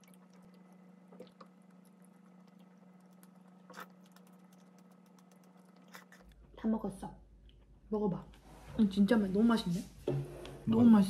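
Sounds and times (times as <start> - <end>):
soft eating sounds: 0.0 - 6.6.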